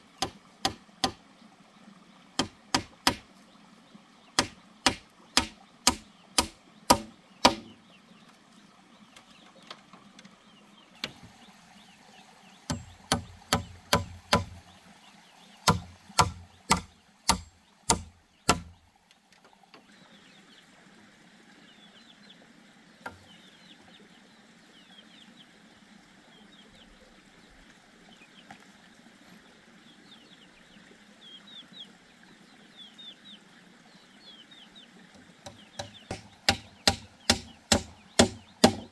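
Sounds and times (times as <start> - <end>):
hammer knocking on wooden pole: 2.4 - 3.2, 4.4 - 7.8, 12.7 - 14.6, 15.7 - 18.7, 35.4 - 38.9.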